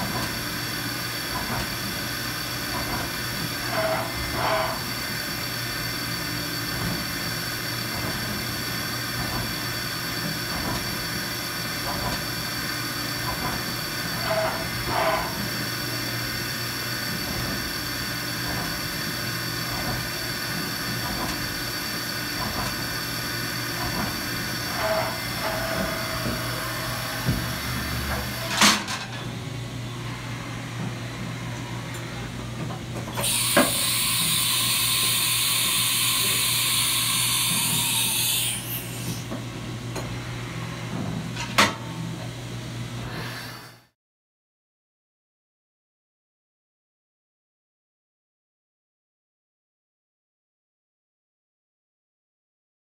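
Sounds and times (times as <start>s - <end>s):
milling machine spindle whine: 0.0s - 28.6s, 33.2s - 39.4s
loud steady hiss: 33.2s - 37.8s.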